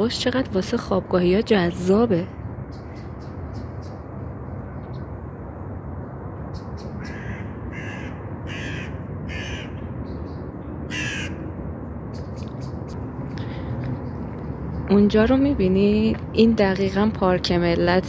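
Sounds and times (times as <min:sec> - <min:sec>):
crow cawing: 0:07.0 - 0:09.8, 0:10.9 - 0:11.4.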